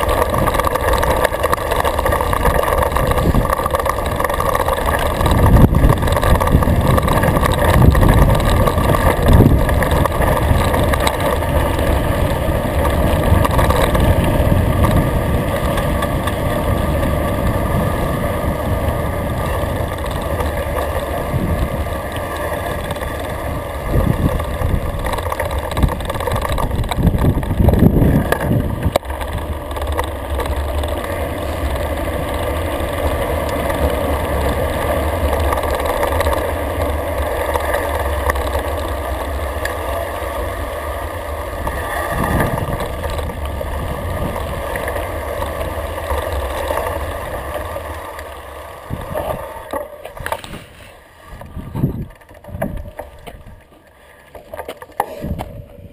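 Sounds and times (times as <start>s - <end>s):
wind rumble on microphone: 0.0s - 53.8s, 54.4s - 55.9s
bike jolting over bumps: 0.0s - 55.9s
tyres rolling over gravel: 0.0s - 55.9s.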